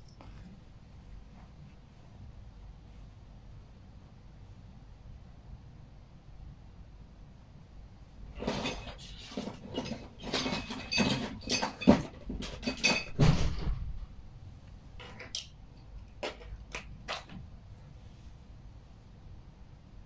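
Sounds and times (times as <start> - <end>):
hard objects knocking and clinking: 8.5 - 13.3.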